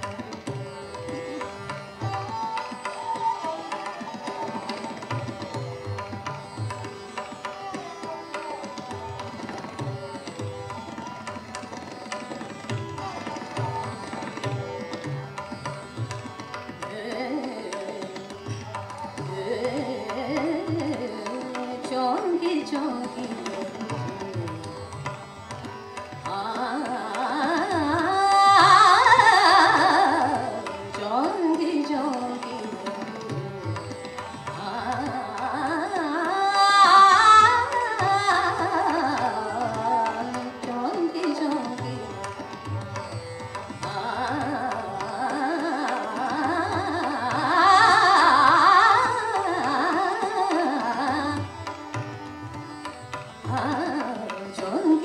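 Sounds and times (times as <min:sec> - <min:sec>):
harmonium: 0:00.0 - 0:55.0
tabla: 0:00.0 - 0:55.0
tanpura drone: 0:00.0 - 0:55.0
woman singing ornamented melody: 0:16.9 - 0:18.6, 0:19.4 - 0:24.7, 0:26.2 - 0:33.4.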